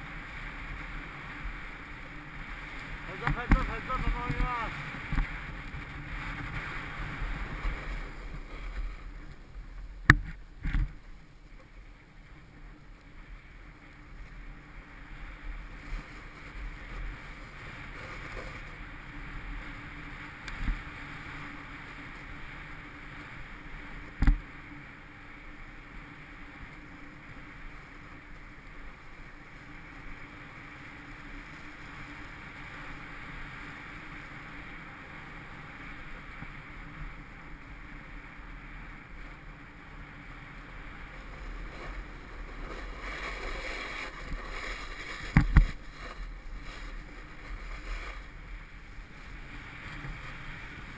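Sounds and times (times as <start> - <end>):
snowboard scraping over snow: 0.0 - 50.9
wind on microphone: 40.6 - 50.9.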